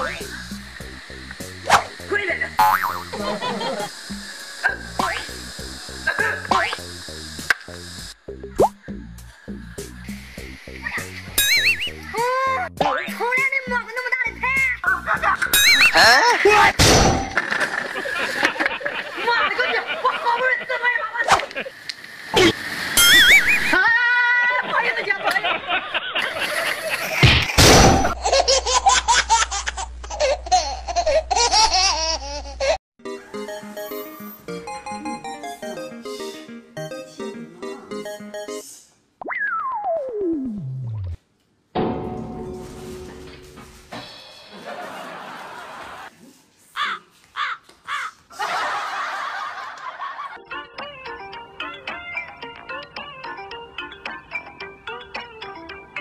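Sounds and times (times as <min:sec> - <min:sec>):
high-pitched laughter: 0:14.9 - 0:16.7
plinking tune: 0:33.0 - 0:38.6
loud crash: 0:41.8 - 0:44.8.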